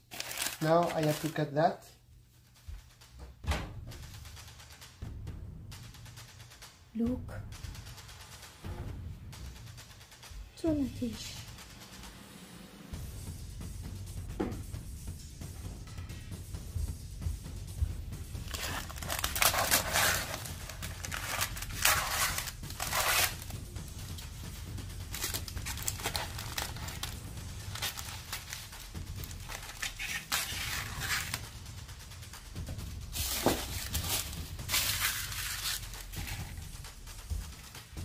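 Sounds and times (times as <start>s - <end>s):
background music: 0.0s - 38.0s
scissors cutting paper: 18.5s - 23.5s, 25.1s - 31.4s, 33.3s - 36.6s.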